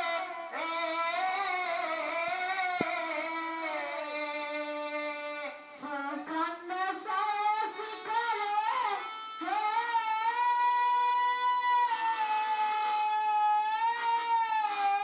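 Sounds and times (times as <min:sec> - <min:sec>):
folk singing: 0:00.0 - 0:12.0.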